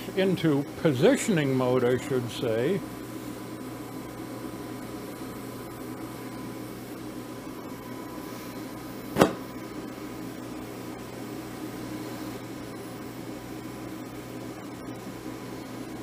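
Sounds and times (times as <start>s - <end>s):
torch hum and hiss: 0.0s - 16.0s
torch lighting pop: 9.1s - 9.6s.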